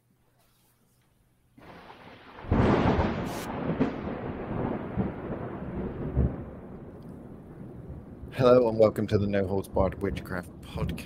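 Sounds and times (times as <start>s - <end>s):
loud rumbling crash with crackles: 1.6s - 8.7s
hiss: 3.2s - 3.6s.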